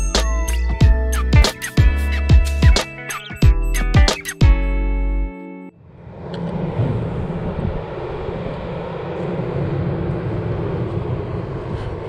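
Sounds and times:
intro music: 0:00.0 - 0:05.8
distant traffic rumble: 0:05.8 - 0:12.0.

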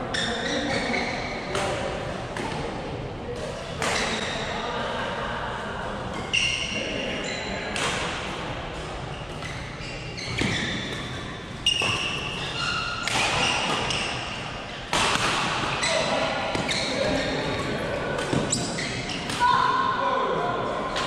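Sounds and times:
shoes squeaking on court: 0:00.1 - 0:01.5, 0:06.2 - 0:07.7, 0:08.7 - 0:14.9, 0:15.6 - 0:19.4
racket hitting shuttlecock: 0:07.7 - 0:19.5.

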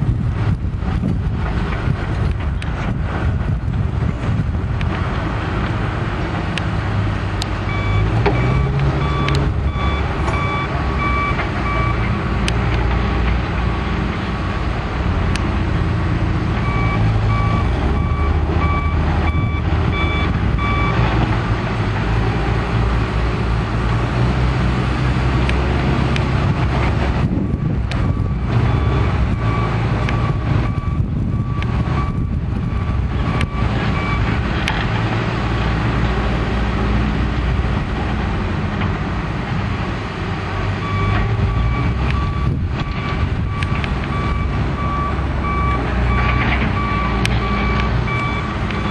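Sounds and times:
diesel engines running: 0:00.0 - 0:48.9
reverse alarm beeping: 0:07.7 - 0:12.0, 0:16.6 - 0:21.0, 0:28.0 - 0:34.3, 0:40.9 - 0:48.9.

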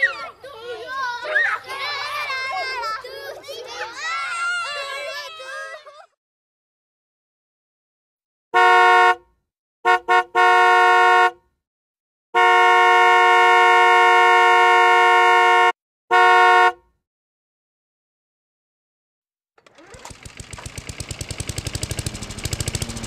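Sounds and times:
car horn honking: 0:08.6 - 0:09.3, 0:09.9 - 0:11.4, 0:12.4 - 0:16.8.

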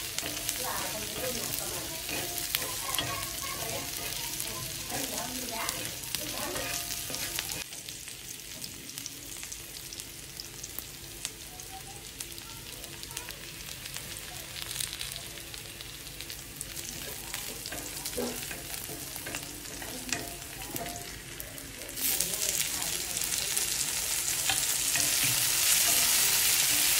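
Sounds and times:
metal spatula scraping: 0:00.0 - 0:07.7, 0:17.0 - 0:21.4, 0:23.8 - 0:26.9
onions sizzling on a griddle: 0:00.0 - 0:26.9.

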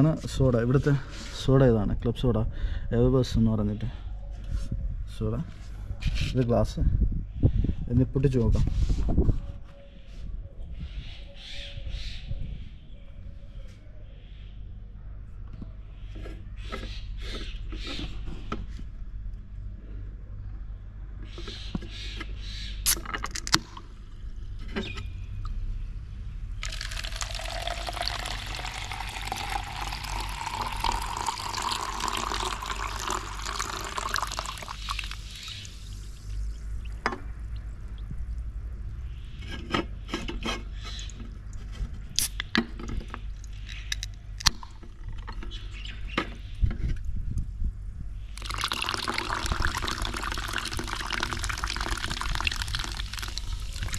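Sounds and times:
soda pouring into a cup: 0:26.6 - 0:36.4, 0:48.4 - 0:53.9.

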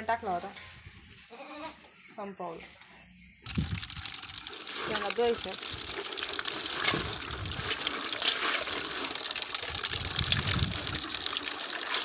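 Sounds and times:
groundnuts sloshing and clicking: 0:03.4 - 0:12.0
water gushing from a pipe: 0:03.4 - 0:12.0.

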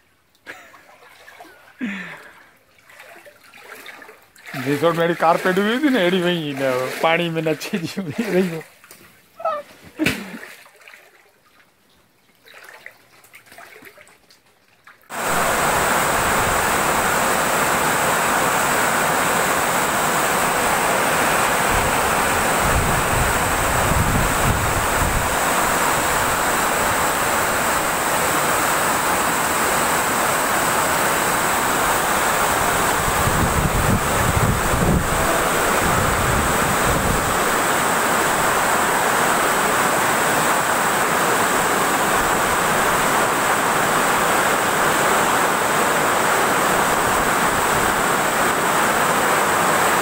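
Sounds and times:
loud rushing water: 0:01.0 - 0:08.8, 0:15.1 - 0:50.0
low rumbling gusts: 0:20.1 - 0:27.9, 0:31.8 - 0:37.7.

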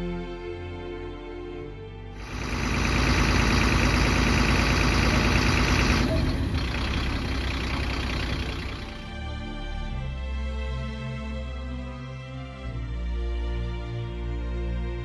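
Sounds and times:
soft music: 0:00.0 - 0:02.2, 0:08.8 - 0:15.0
loud hiss: 0:02.2 - 0:08.7
diesel engine running: 0:02.2 - 0:09.7.

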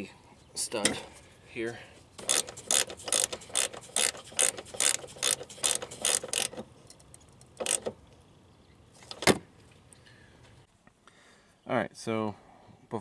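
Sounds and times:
hand ratchet clicking: 0:02.2 - 0:07.9.

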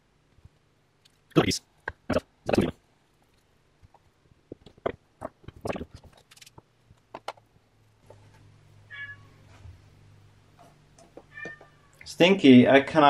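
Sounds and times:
low steady hum: 0:00.0 - 0:13.0
cat meowing: 0:08.9 - 0:09.4, 0:11.3 - 0:12.0.

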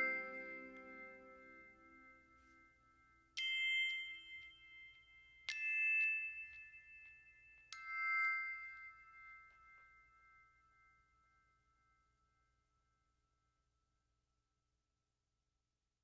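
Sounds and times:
bell-like chime notes: 0:00.0 - 0:12.1.

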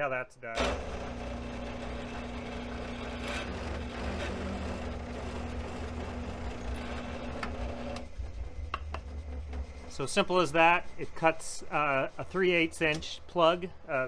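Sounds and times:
bit boring into wood: 0:00.6 - 0:08.1
drill press running: 0:00.6 - 0:12.1.

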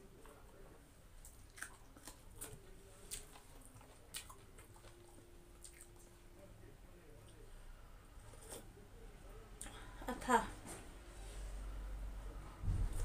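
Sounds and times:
close-up chewing and biting: 0:01.2 - 0:06.2.

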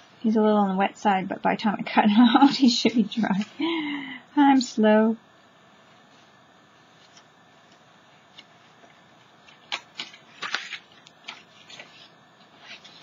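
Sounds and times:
paper rustling: 0:07.0 - 0:13.0.

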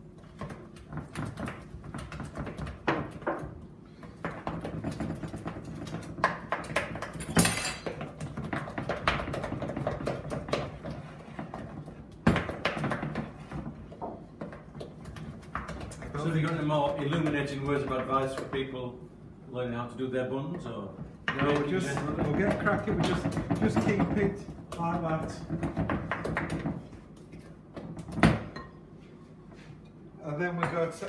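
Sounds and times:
wooden spoon beating in bowl: 0:00.2 - 0:18.7, 0:21.3 - 0:27.0.

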